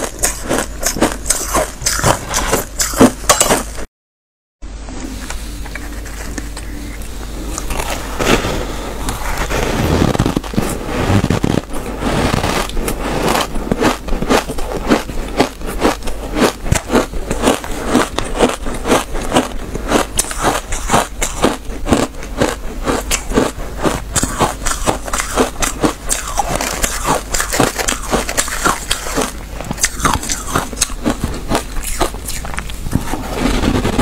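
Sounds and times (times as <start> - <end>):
squeaky ice chewing crunches: 0.0 - 3.8, 11.2 - 34.0.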